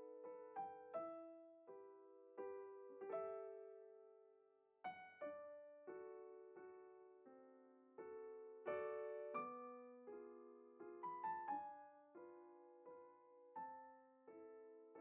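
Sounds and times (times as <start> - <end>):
soft piano music: 0.0 - 15.0.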